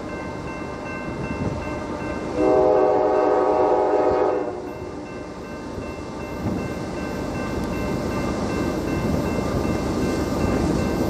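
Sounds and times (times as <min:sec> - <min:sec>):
diesel locomotive engine: 0:00.0 - 0:11.0
train horn blast: 0:02.3 - 0:04.8.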